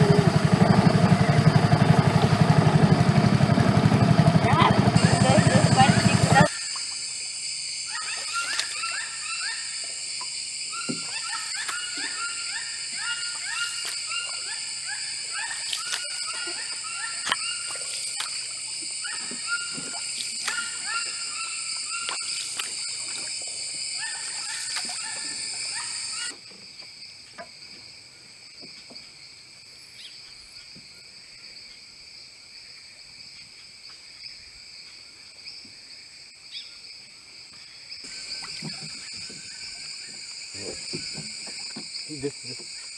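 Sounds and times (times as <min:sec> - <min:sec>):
insect chorus buzzing: 0:00.0 - 0:42.9
canoe paddle knocks and splashes: 0:38.1 - 0:42.8.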